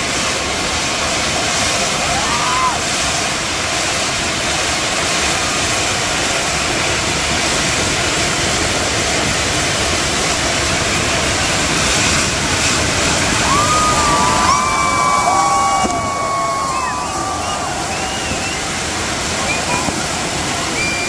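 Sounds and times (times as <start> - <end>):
fireworks hissing and crackling: 0.0 - 21.0
whistling fireworks: 0.0 - 21.0.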